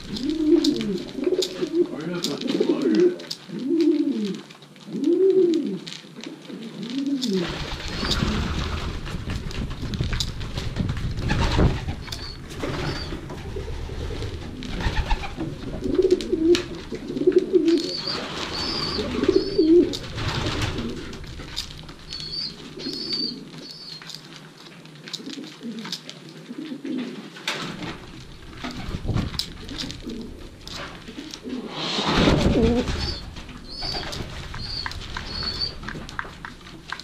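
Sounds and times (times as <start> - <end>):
pigeons cooing: 0.0 - 8.9, 11.2 - 24.2, 25.1 - 27.4, 28.4 - 37.0
high chirping calls: 12.0 - 13.2, 32.9 - 35.8.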